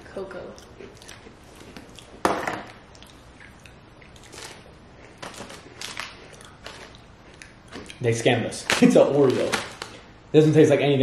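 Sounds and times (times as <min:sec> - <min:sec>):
faint chewing crunches: 0:00.5 - 0:02.2, 0:02.8 - 0:08.1
cookie crunching: 0:02.9 - 0:10.0.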